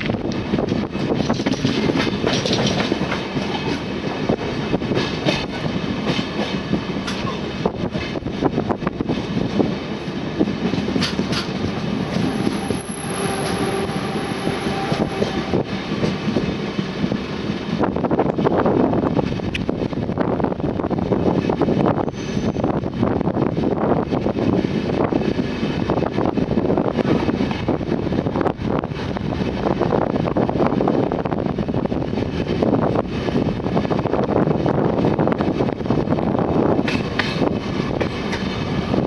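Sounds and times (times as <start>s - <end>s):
clatter of rail joints: 0.0s - 3.9s, 4.9s - 9.6s, 10.6s - 12.3s, 36.8s - 38.7s
train wheels rumbling on rails: 0.0s - 39.0s
high wheel squeal: 12.1s - 16.4s, 22.0s - 22.8s.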